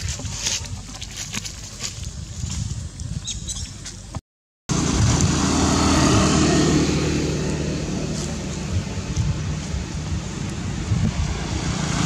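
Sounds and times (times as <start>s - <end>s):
vehicle engine passing by: 4.7s - 12.0s.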